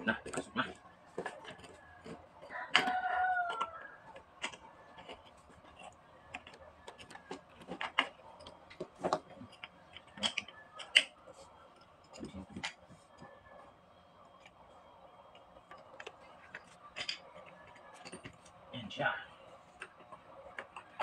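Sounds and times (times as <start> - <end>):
metal parts clicking and knocking: 0.0 - 13.5, 15.2 - 18.7, 19.8 - 21.0
rooster crowing: 1.8 - 4.2.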